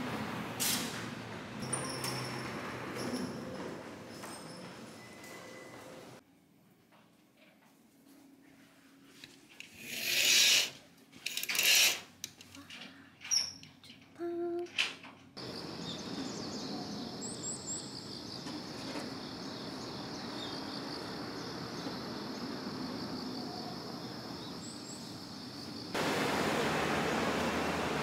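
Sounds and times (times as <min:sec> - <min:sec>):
street traffic noise: 0:00.0 - 0:06.2, 0:15.4 - 0:28.0.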